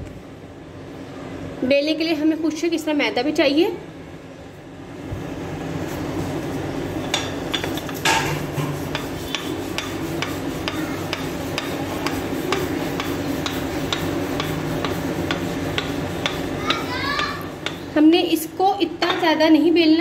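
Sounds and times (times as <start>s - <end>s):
rolling pin rolling dough: 5.9s - 19.7s.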